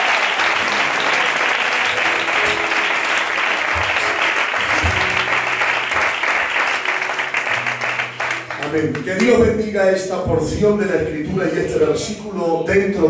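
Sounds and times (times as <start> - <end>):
congregation applauding: 0.0 - 9.6
instrumental music: 0.5 - 9.7.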